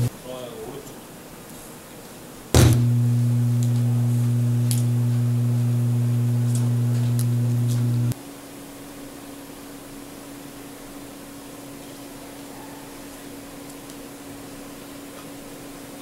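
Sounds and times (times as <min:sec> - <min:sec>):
loud low hum: 0:02.6 - 0:08.2.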